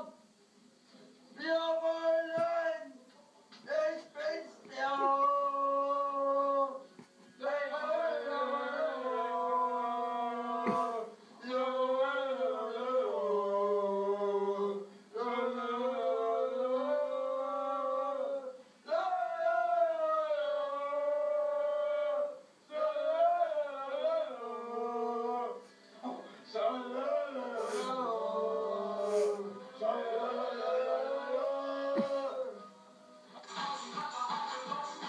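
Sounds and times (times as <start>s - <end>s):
men singing together: 7.4s - 25.6s, 26.5s - 32.7s.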